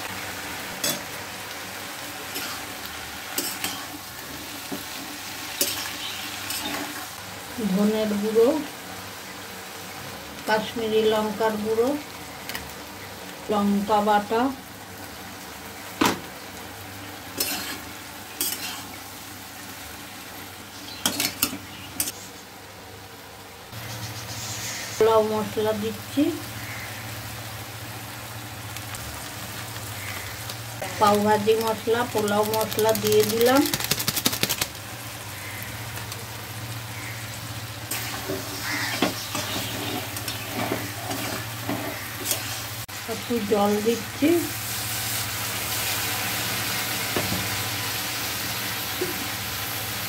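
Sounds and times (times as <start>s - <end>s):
food sizzling in a wok: 0.0s - 50.0s.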